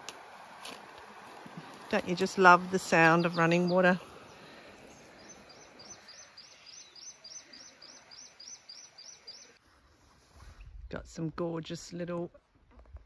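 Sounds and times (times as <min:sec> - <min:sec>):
running creek water: 0:00.0 - 0:09.6
bird chirping rapidly: 0:02.2 - 0:09.6.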